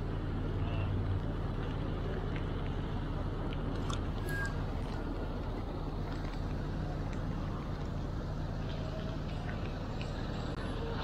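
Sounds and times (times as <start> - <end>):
low hum: 0.0 - 11.0
wet traffic: 0.0 - 11.0.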